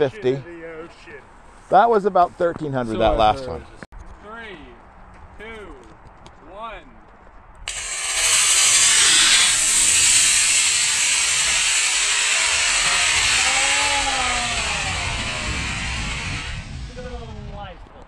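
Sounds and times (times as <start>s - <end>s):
rocket motor rushing hiss: 7.7s - 17.6s.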